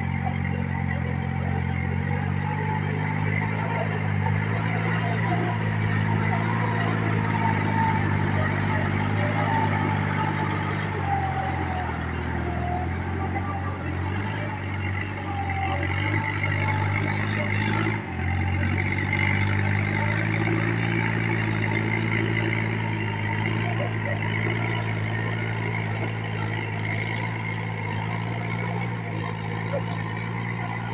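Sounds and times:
rotavator tilling mud: 0.0 - 30.9
tractor diesel engine running: 0.0 - 30.9.

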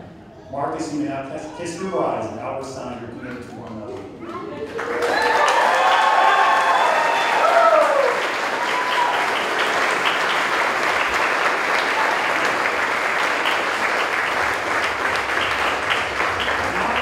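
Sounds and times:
crowd applauding: 3.3 - 17.0.

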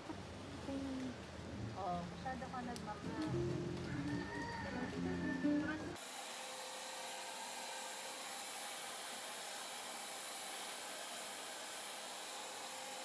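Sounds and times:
hair dryer blowing: 6.0 - 13.0.

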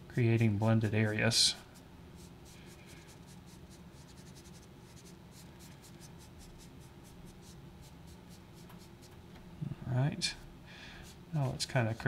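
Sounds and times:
sponge rubbing pastel on paper: 2.2 - 8.7.

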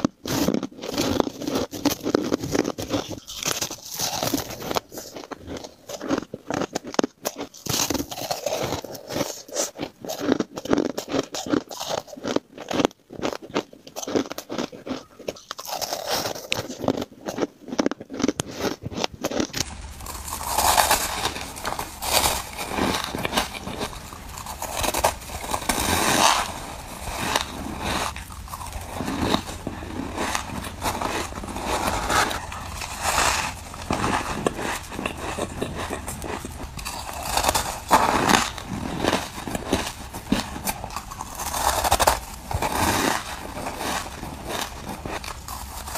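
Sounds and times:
crushed ice being chewed: 0.0 - 45.9
packed ice crunching and scraping: 0.0 - 45.9
low steady hum: 19.5 - 45.9.

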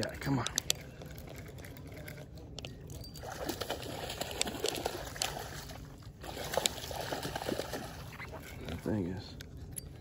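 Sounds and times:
fish splashing in water: 3.2 - 8.7.

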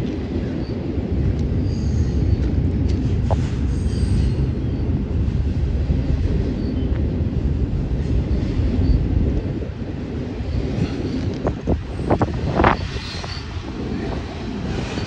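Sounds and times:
train wheels rumbling on rails: 0.0 - 15.0
high-pitched wheel squeals: 12.6 - 13.6.

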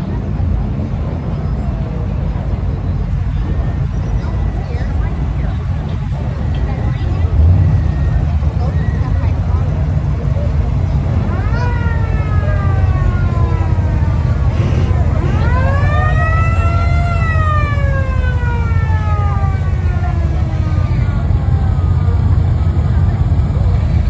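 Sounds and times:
car engines running: 0.0 - 24.0
siren wailing: 11.2 - 22.6.

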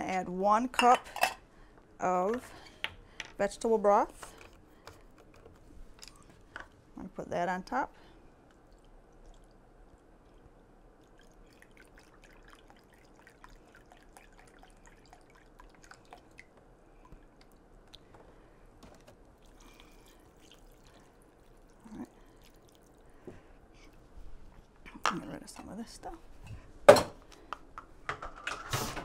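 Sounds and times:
liquid trickling into cup: 8.5 - 18.0, 19.4 - 23.2
liquid pouring: 8.5 - 18.1, 19.2 - 23.2.

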